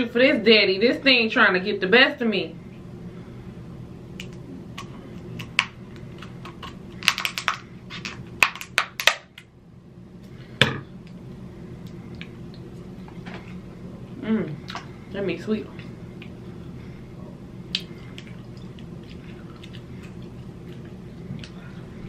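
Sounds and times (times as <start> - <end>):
scissors cracking crab shell: 4.2 - 9.4.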